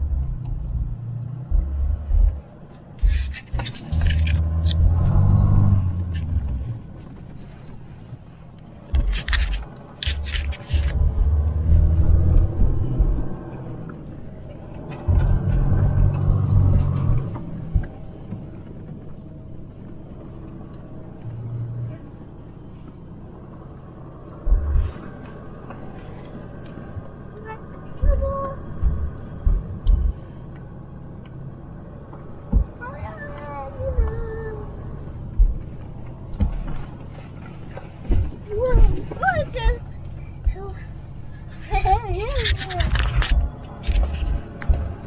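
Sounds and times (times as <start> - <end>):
low thumps: 0.0 - 6.8, 8.9 - 13.5, 15.0 - 19.0, 24.4 - 25.8, 28.0 - 30.3, 32.1 - 32.8, 35.0 - 36.8, 42.8 - 45.0
car engine revving: 0.0 - 7.0, 9.0 - 18.7, 23.4 - 40.8, 42.6 - 45.0.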